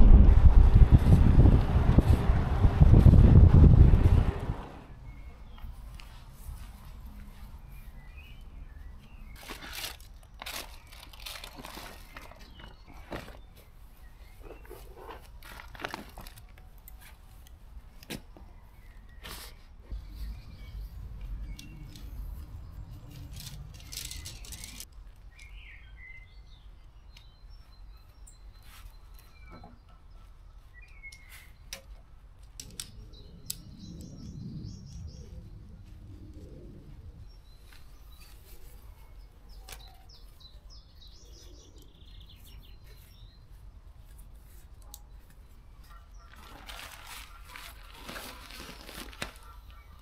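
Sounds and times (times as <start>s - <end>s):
wind rumbling on microphone: 0.0s - 5.4s, 19.8s - 24.9s, 32.6s - 39.5s
small birds chirping: 4.8s - 15.6s, 16.4s - 50.0s
clicks and rustles of gear handled: 9.3s - 13.8s, 14.4s - 18.4s, 23.1s - 25.5s, 44.0s - 49.8s.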